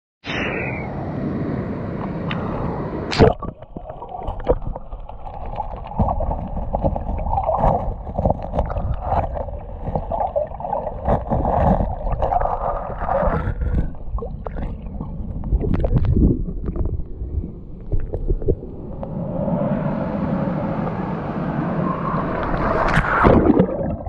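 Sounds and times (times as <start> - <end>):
muffled underwater water churn: 2.0 - 24.0
water rushing at surface: 2.3 - 24.0
dull underwater knocks: 3.2 - 17.1.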